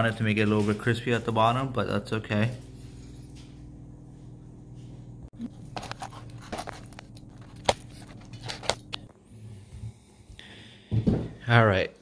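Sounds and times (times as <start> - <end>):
low hum: 0.4 - 10.5.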